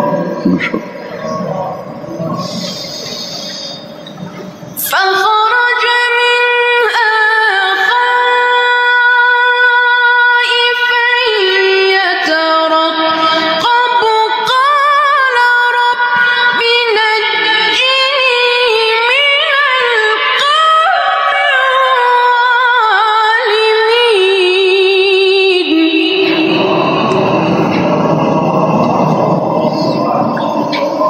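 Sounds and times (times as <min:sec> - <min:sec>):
person chanting in high register: 0:00.0 - 0:03.9, 0:04.8 - 0:31.0.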